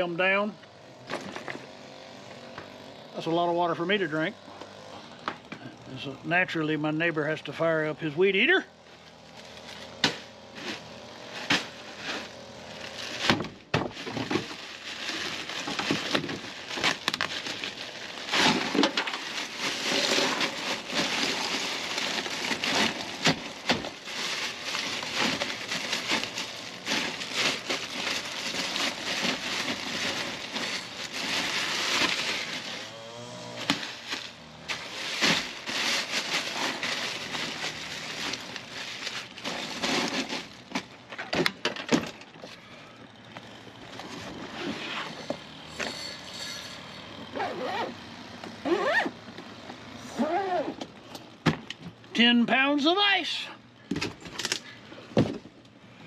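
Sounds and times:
plastic bag rustling: 11.4s - 32.9s, 33.8s - 41.0s, 43.8s - 47.9s
ice cubes clattering and crunching: 13.9s - 32.9s, 33.9s - 40.6s, 45.1s - 47.3s.

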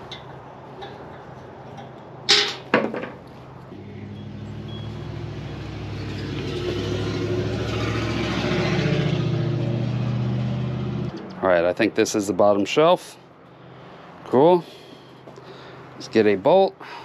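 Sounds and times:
loud metal clanks: 0.0s - 3.2s
vehicle engine hum: 0.0s - 17.0s.

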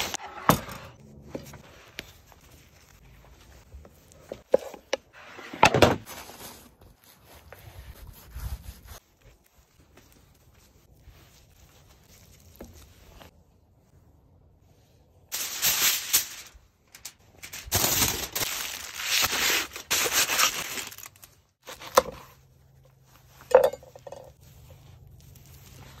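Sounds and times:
aluminium foil crinkling: 15.4s - 21.9s.

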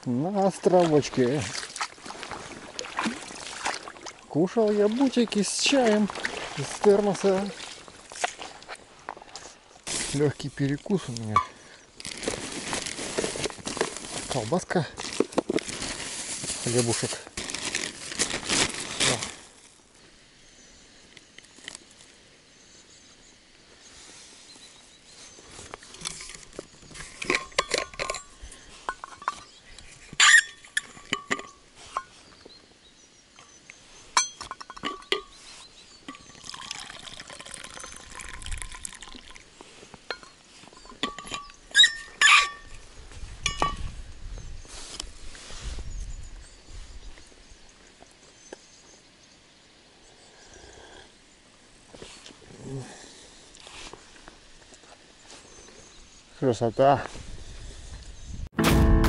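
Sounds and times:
plastic bag crinkling: 12.0s - 19.6s
metallic clinks of flask cap: 27.2s - 28.3s, 34.2s - 35.4s, 43.5s - 43.8s
tea pouring into cup: 36.2s - 39.5s.

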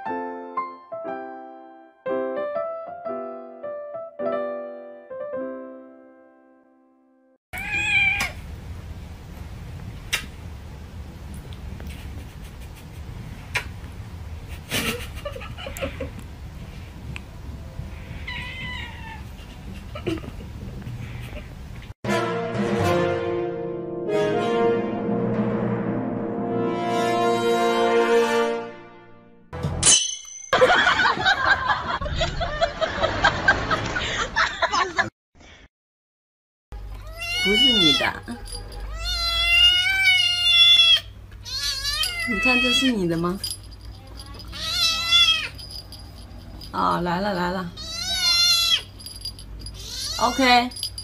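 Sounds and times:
cat meowing: 7.6s - 8.4s, 18.2s - 19.3s, 36.9s - 42.9s, 44.5s - 45.6s, 47.8s - 48.9s, 49.8s - 50.6s
laugh track: 14.4s - 16.2s, 19.3s - 21.5s, 30.6s - 35.1s.

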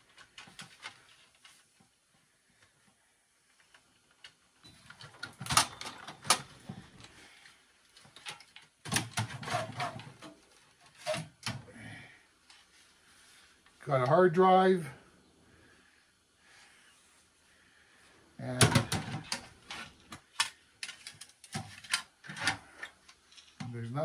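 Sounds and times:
rattling and scraping in computer case: 8.0s - 11.6s, 18.6s - 20.0s.

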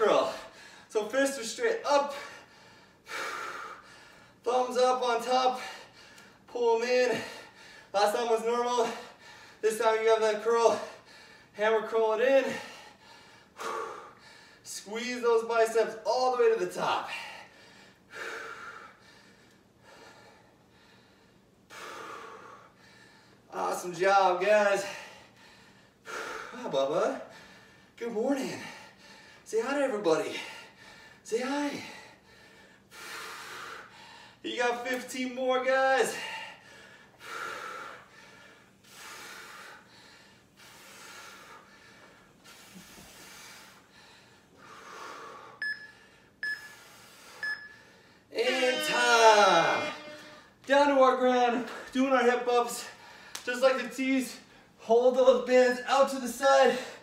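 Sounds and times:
man breathing hard: 0.2s - 0.9s, 2.1s - 4.4s, 5.5s - 6.5s, 7.1s - 8.0s, 8.8s - 9.6s, 10.8s - 11.6s, 12.5s - 14.7s, 17.1s - 23.5s, 24.8s - 29.5s, 30.3s - 34.5s, 36.1s - 48.3s, 52.8s - 53.4s
short electronic beeps: 45.6s - 46.8s, 47.4s - 47.8s.

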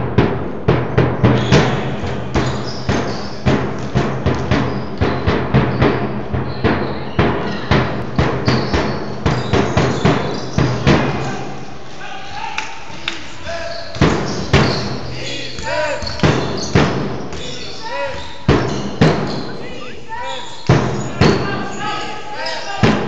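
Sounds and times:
music with strong drum beat: 0.0s - 11.2s, 14.0s - 15.1s, 16.2s - 17.4s, 18.5s - 19.6s.

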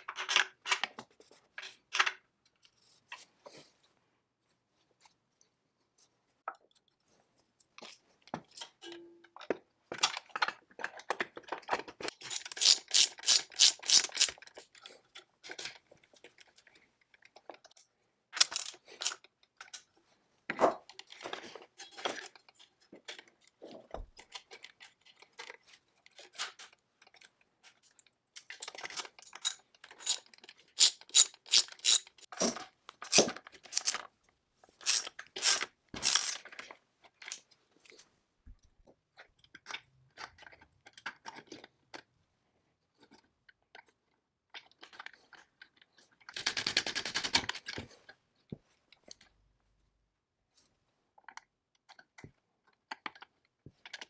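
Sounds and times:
metal parts clinking: 12.2s - 14.3s, 18.4s - 19.2s, 28.8s - 32.3s, 33.1s - 34.0s, 34.8s - 36.5s
ratchet wrench clicking: 12.3s - 14.3s, 18.4s - 18.8s, 29.4s - 30.2s, 30.8s - 32.3s, 34.8s - 36.4s.

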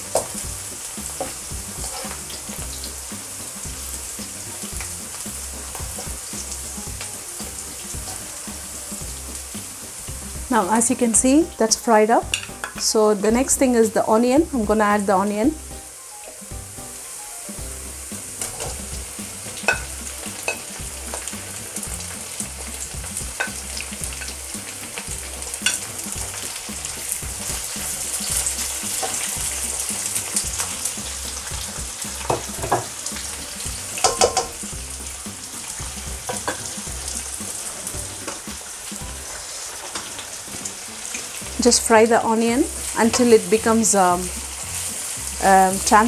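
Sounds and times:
onions sizzling in oil: 0.0s - 46.0s
spatula scraping a pan: 1.0s - 2.6s, 18.4s - 22.8s, 27.5s - 33.0s.

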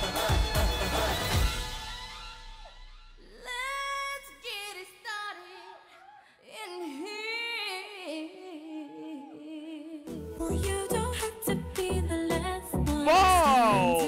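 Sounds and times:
woman singing slow melody: 6.4s - 14.0s.

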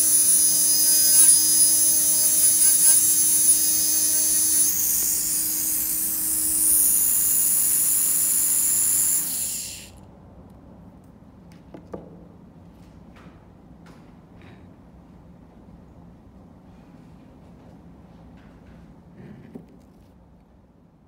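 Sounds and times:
micro grinder high-pitched whine: 0.0s - 10.0s.

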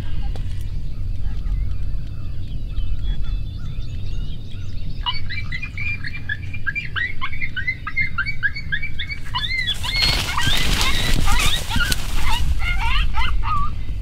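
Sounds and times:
coyotes yipping: 0.0s - 4.3s, 4.9s - 14.0s.

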